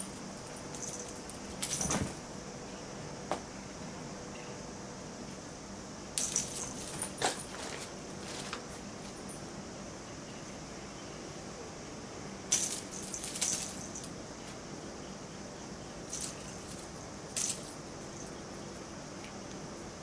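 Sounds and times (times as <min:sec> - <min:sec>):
small bell jingling: 0:00.0 - 0:02.0, 0:06.2 - 0:08.4, 0:12.5 - 0:14.2, 0:16.1 - 0:18.3.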